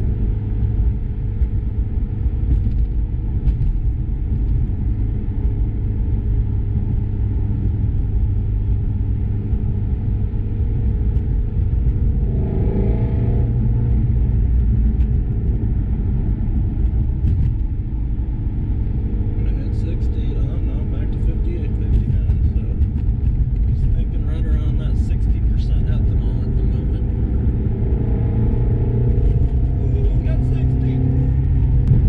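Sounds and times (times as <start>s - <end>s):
car engine drone: 0.0s - 32.0s
road rumble: 0.0s - 32.0s.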